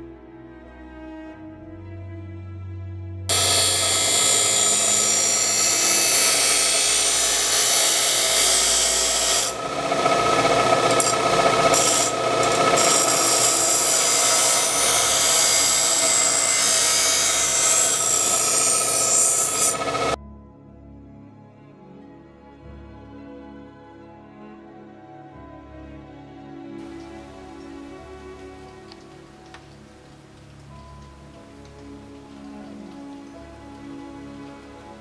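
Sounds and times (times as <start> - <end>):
grinder motor: 3.3 - 20.2
grinding wheel on steel blade: 3.3 - 20.2.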